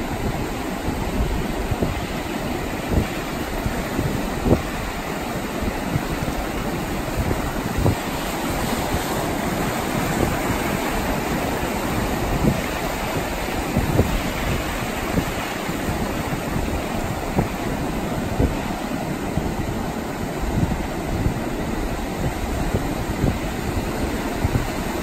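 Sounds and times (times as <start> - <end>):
sea surf washing over sand: 0.0 - 25.0
wind rumbling on microphone: 0.0 - 25.0.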